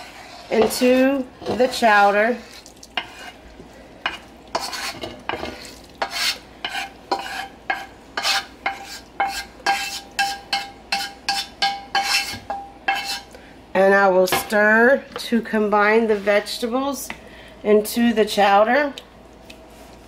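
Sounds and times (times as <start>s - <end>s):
wooden spoon scraping a skillet: 0.0s - 13.3s, 15.8s - 16.8s.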